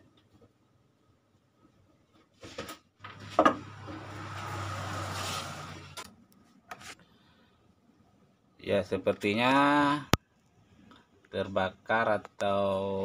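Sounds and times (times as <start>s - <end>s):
metal cover scraping and rubbing: 3.2s - 6.0s.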